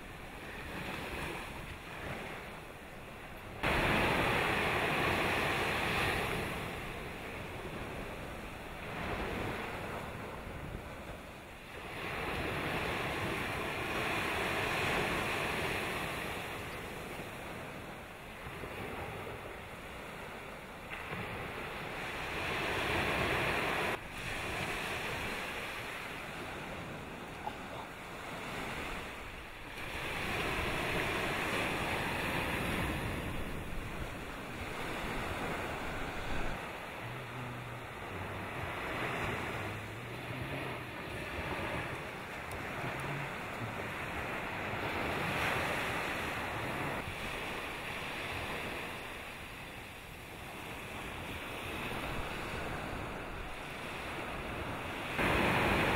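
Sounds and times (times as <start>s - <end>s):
sea waves washing: 0.0s - 55.9s
wind buffeting microphone: 28.6s - 47.6s.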